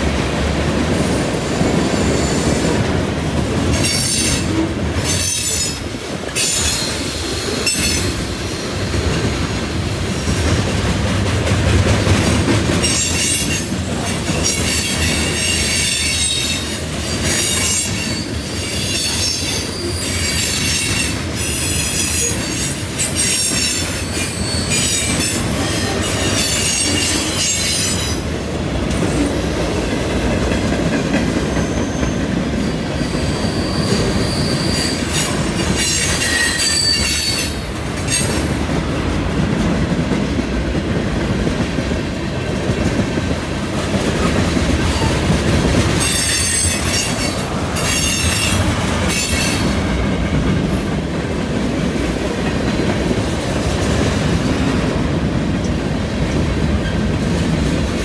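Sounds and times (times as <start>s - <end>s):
freight train rumbling past: 0.0s - 58.0s
rail clatter: 0.0s - 58.0s
steel wheels squealing: 6.4s - 9.1s, 12.8s - 28.2s, 31.4s - 38.4s, 46.0s - 50.4s.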